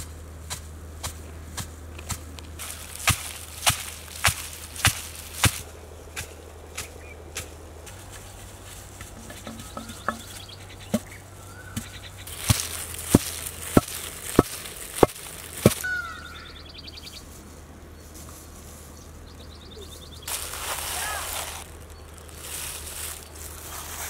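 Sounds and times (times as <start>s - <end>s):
birds chirping: 2.3s - 24.0s
pestle pounding in stone mortar: 9.2s - 11.1s, 12.5s - 15.8s.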